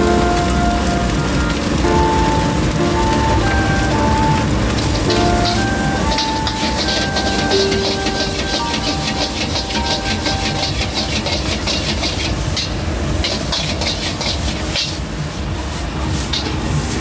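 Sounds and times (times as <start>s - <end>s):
steady low rumble: 0.0s - 14.0s
hiss: 0.0s - 17.0s
metal spatula scraping in a wok: 4.7s - 17.0s.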